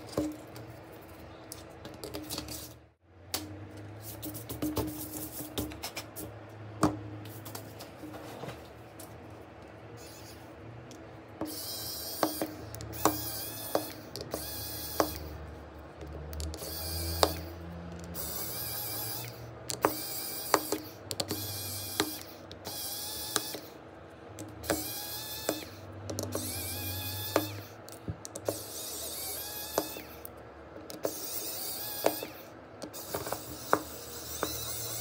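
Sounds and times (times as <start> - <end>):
handheld motorised tool whirring: 10.0 - 10.5, 11.4 - 15.4, 16.4 - 23.8, 24.6 - 30.3, 30.9 - 35.0
tools clicking on phone: 24.4 - 35.0.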